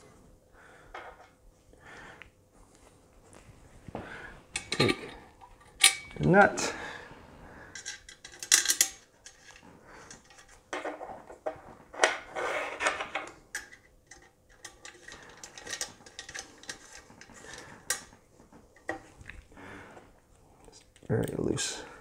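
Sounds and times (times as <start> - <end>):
metal parts and tool clinking: 4.6 - 6.4, 7.7 - 12.2, 12.9 - 18.2.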